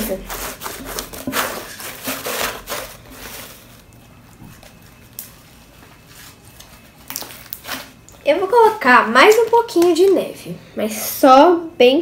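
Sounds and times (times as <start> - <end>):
slime squishing and rubbing: 0.0 - 4.0.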